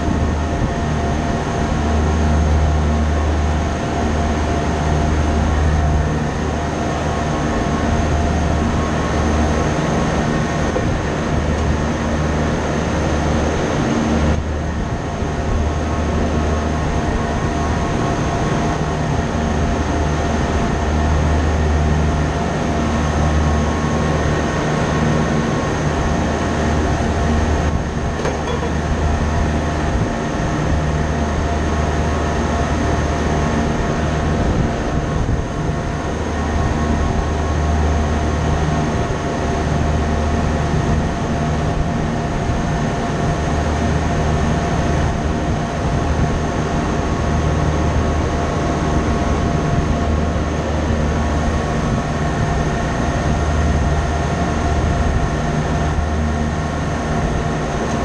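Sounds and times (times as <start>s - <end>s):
machinery humming: 0.0s - 35.4s.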